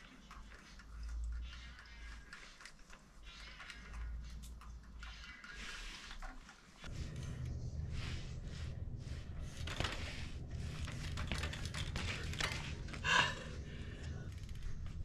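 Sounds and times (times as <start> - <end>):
low rumble: 6.9 - 15.0.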